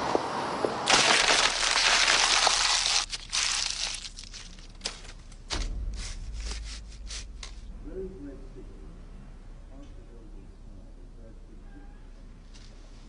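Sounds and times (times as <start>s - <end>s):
sudden loud rush of noise: 5.3s - 9.7s.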